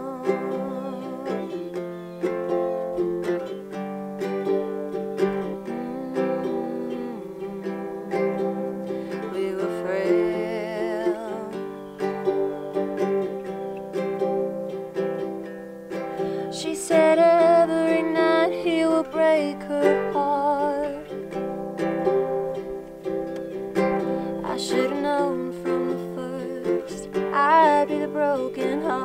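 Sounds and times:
woman singing a slow song: 0:00.0 - 0:03.0, 0:04.9 - 0:13.3, 0:16.0 - 0:21.4, 0:23.8 - 0:29.0
ukulele chords: 0:00.0 - 0:29.0.

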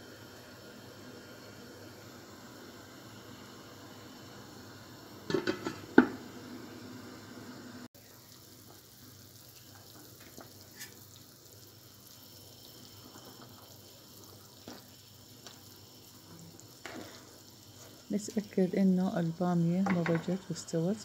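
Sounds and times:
stew simmering: 0:07.9 - 0:21.0.

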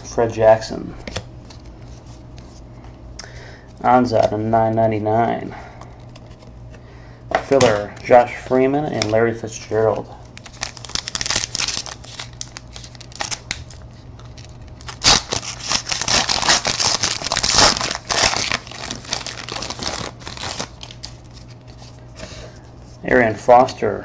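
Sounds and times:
wrapper crinkling: 0:10.2 - 0:22.0.

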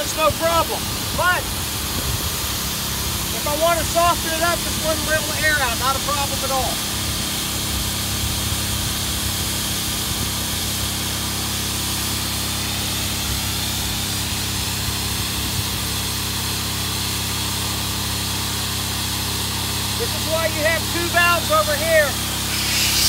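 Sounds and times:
air pump motor hum: 0:00.0 - 0:23.0
rush of air: 0:22.2 - 0:23.0.

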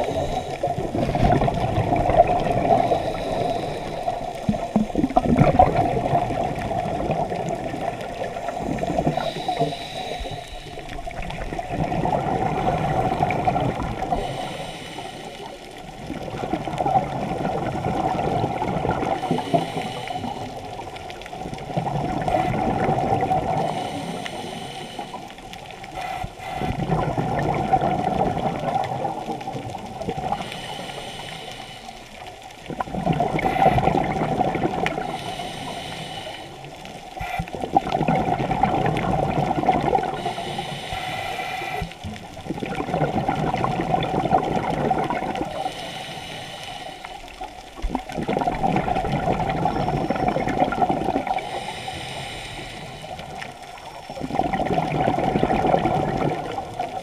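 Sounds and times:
exhaled bubbles gurgling: 0:00.0 - 0:57.0
regulator inhalation hiss: 0:02.6 - 0:04.7, 0:08.3 - 0:11.0, 0:14.1 - 0:15.7, 0:19.2 - 0:20.8, 0:23.6 - 0:26.8, 0:30.3 - 0:32.2, 0:35.0 - 0:37.6, 0:40.2 - 0:42.1, 0:45.5 - 0:47.5, 0:51.3 - 0:53.9.

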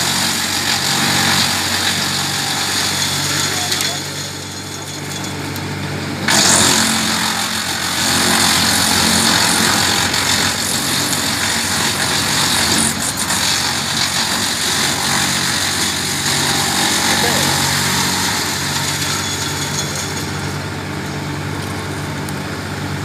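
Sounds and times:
tractor engine running: 0:00.0 - 0:23.0.

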